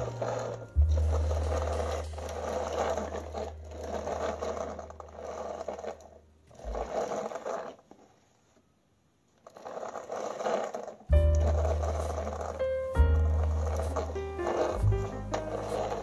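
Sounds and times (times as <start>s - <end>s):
low steady hum: 0.0s - 6.6s, 11.1s - 16.0s
toy wheels rolling on hard floor: 0.0s - 8.6s, 9.4s - 16.0s.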